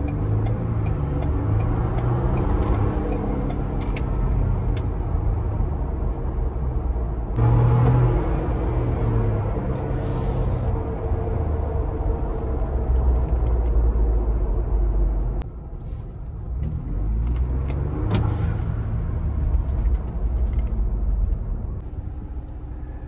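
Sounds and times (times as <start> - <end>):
car engine accelerating: 0.0 - 15.4.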